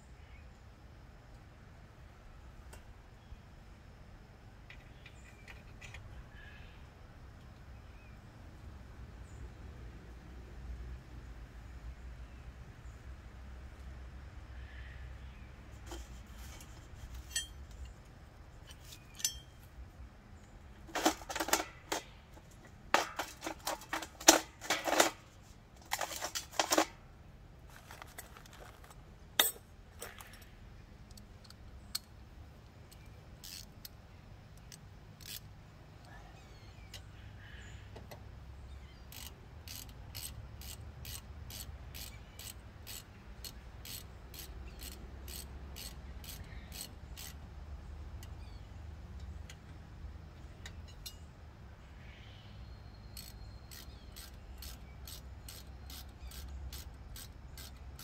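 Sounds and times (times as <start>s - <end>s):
metal tools clattering: 15.9s - 18.0s, 18.7s - 19.6s, 20.9s - 27.0s, 27.7s - 30.5s
hand ratchet clicking: 33.4s - 33.9s, 34.6s - 35.5s, 39.1s - 47.4s, 53.1s - 58.0s.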